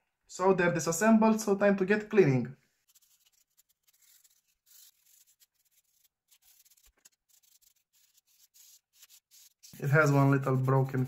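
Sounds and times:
faint scratchy rubbing: 2.8 - 11.0.

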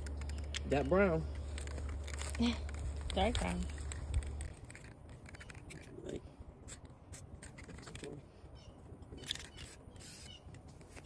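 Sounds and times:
hands rustling and scraping netting: 1.3 - 6.1.

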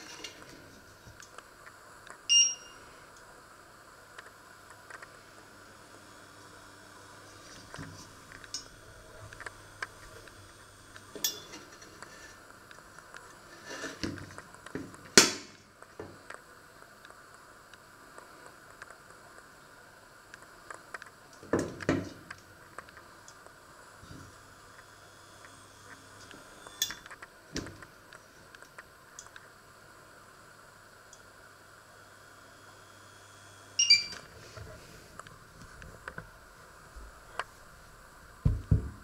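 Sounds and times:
metal handling noises: 11.2 - 12.2.

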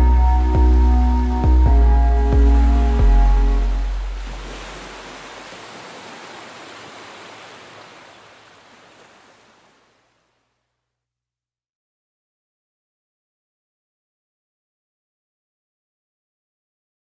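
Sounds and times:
bass note: 0.0 - 4.2
surf-like rushing noise: 2.7 - 10.0.

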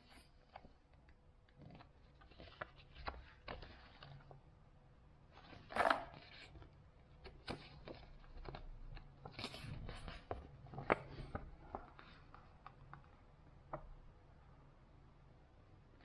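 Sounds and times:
paper rustling: 1.6 - 4.4, 5.3 - 13.8.

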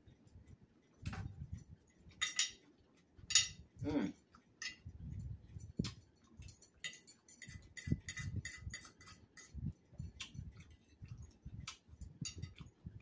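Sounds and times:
chewing crunchy salad: 0.1 - 12.8
fork clicking against plate: 2.0 - 3.6, 4.2 - 12.8.

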